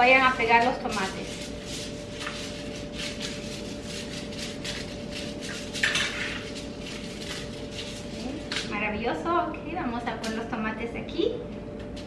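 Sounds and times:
aluminium foil crinkling: 0.0s - 8.8s.

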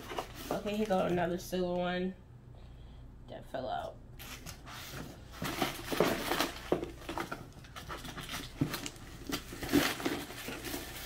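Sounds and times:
packets rustling: 4.2s - 11.0s.

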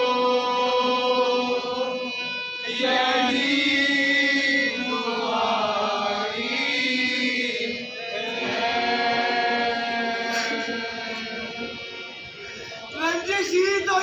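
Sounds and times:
harmonium: 0.0s - 14.0s.

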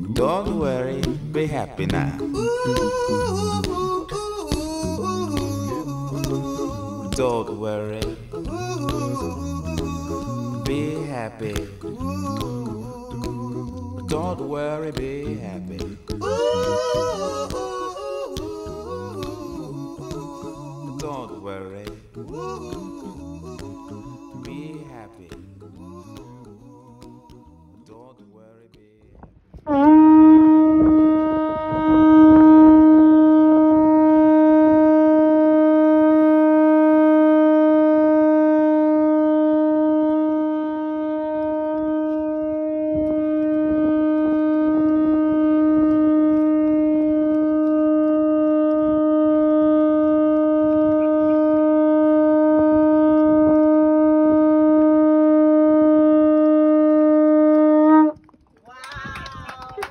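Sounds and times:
conch shell horn note: 29.7s - 58.3s.

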